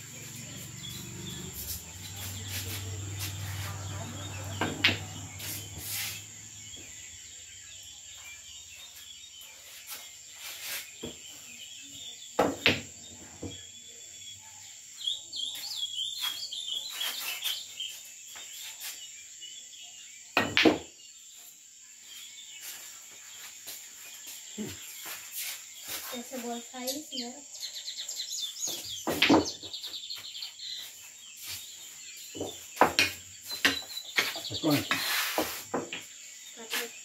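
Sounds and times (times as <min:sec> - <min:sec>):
bird chirping: 0:00.0 - 0:37.0
insects trilling: 0:00.0 - 0:37.0
pool balls knocking: 0:04.1 - 0:05.6.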